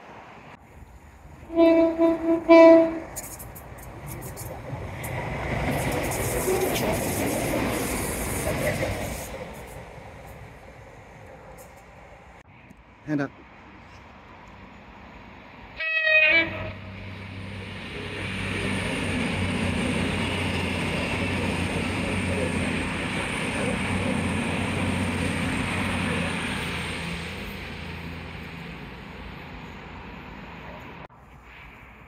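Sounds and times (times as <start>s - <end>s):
train rumbling past: 0.0s - 32.0s
train horn toot: 1.5s - 3.2s, 15.8s - 17.0s.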